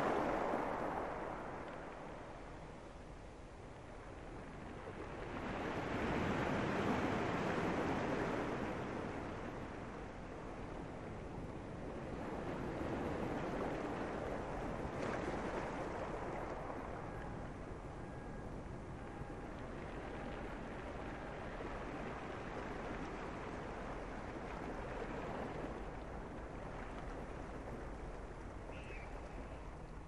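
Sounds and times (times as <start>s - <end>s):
sea waves surging: 0.0s - 2.9s.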